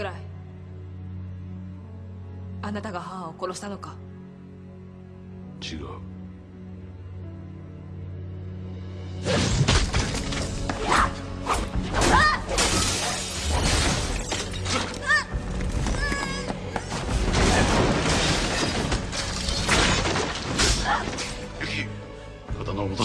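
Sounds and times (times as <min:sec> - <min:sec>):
low music drone: 0:00.0 - 0:09.2
crashes clashes and impacts: 0:12.0 - 0:14.9, 0:17.2 - 0:21.3.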